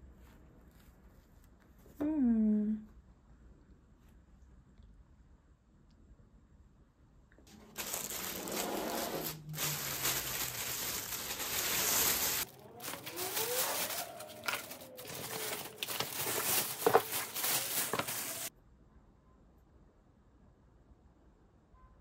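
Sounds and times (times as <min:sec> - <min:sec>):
plastic bag rustling: 0:07.5 - 0:18.5
plastic containers set on table: 0:07.5 - 0:18.5.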